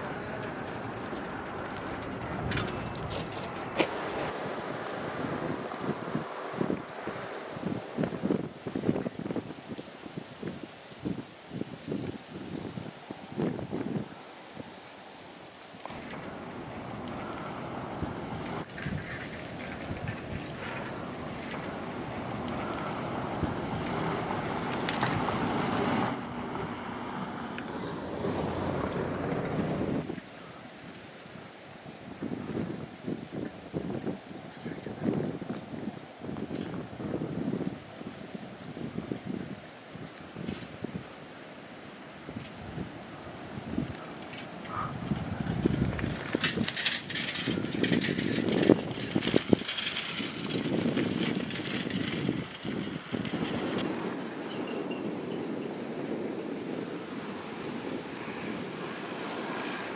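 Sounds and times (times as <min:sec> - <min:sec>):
wind buffeting microphone: 0:00.0 - 0:14.8, 0:15.7 - 0:59.9
bicycle tyres on rough road: 0:00.0 - 0:59.9
bike clicks and knocks: 0:45.5 - 0:53.8.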